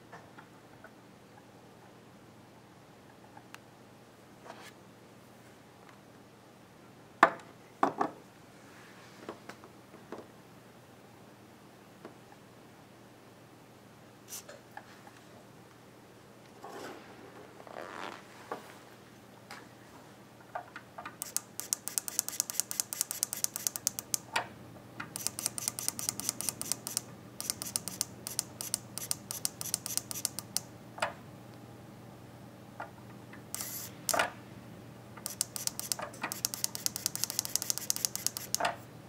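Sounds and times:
servo motor ticking: 21.2s - 24.2s, 25.2s - 30.6s, 35.2s - 38.6s.

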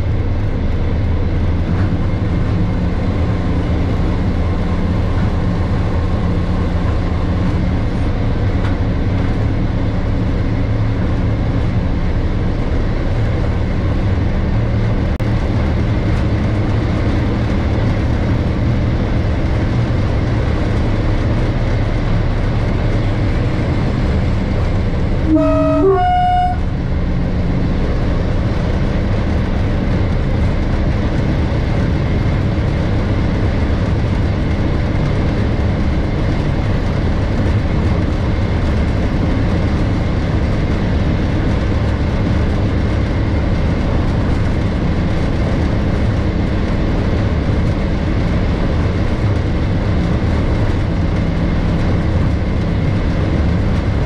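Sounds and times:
diesel locomotive engine droning: 0.0s - 54.0s
two-tone locomotive horn blast: 25.2s - 26.9s.

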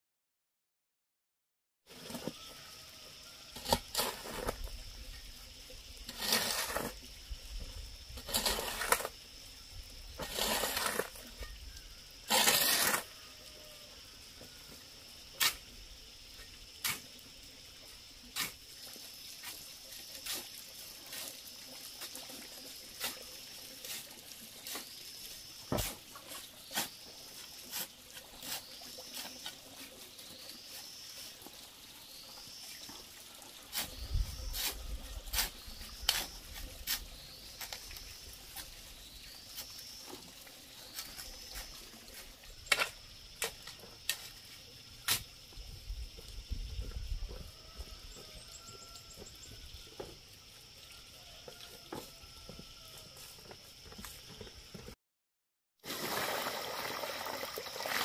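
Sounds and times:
shovel scraping sand: 3.5s - 4.7s, 6.0s - 7.1s, 8.1s - 9.2s, 10.1s - 11.6s, 12.2s - 13.3s, 15.3s - 15.8s, 18.3s - 18.8s, 19.4s - 22.3s, 22.9s - 31.1s, 33.7s - 40.2s.

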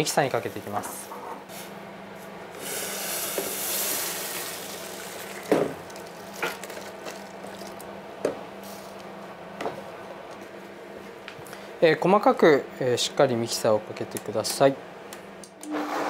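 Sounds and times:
soup pouring with splashing hiss: 3.0s - 6.3s.

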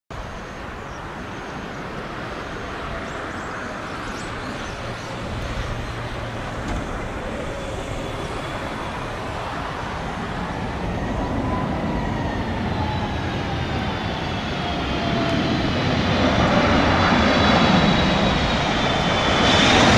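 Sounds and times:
jet engines roaring: 0.2s - 19.9s
engine whine sliding down: 4.8s - 19.9s.

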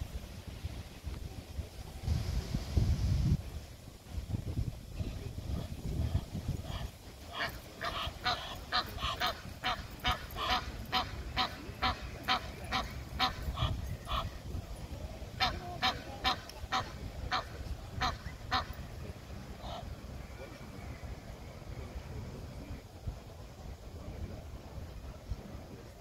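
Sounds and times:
goose honking: 6.6s - 14.4s, 15.4s - 18.7s.

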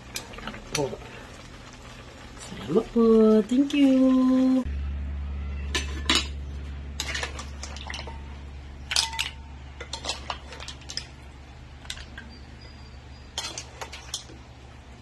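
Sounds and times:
steady low hum: 1.0s - 15.0s
metal ladle clinking on pan: 7.0s - 11.0s.

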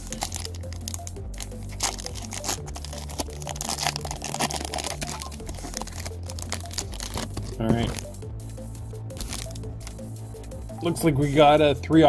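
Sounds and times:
foil pack crinkling and tearing: 0.0s - 8.1s, 9.2s - 10.0s
background music with bass: 0.0s - 12.0s.

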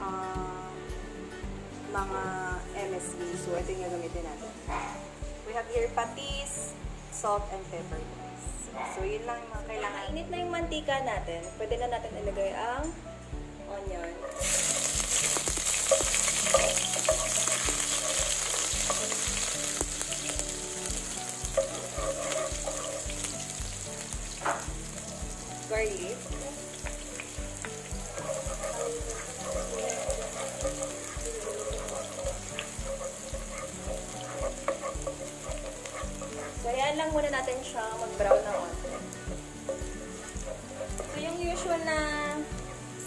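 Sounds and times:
onion sizzling in hot oil: 0.0s - 7.3s, 14.1s - 43.0s
spatula stirring a pan: 14.2s - 42.9s.

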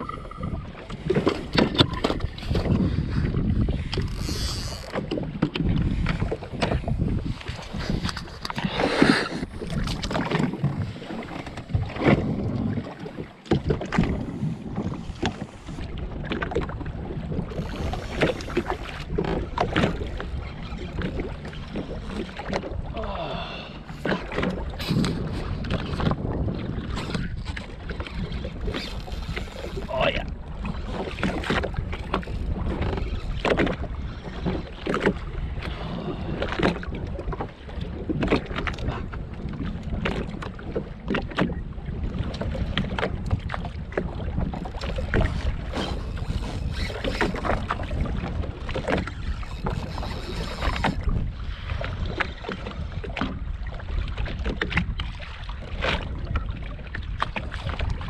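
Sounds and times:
steady low rumble: 0.0s - 1.5s
water slapping against hull: 0.0s - 58.0s
wind buffeting microphone: 0.0s - 58.0s.

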